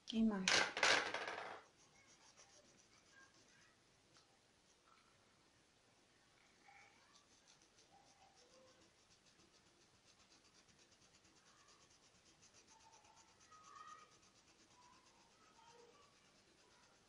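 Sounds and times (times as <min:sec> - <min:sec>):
paintbrush scrubbing on towel: 0:01.7 - 0:03.8, 0:07.0 - 0:17.0.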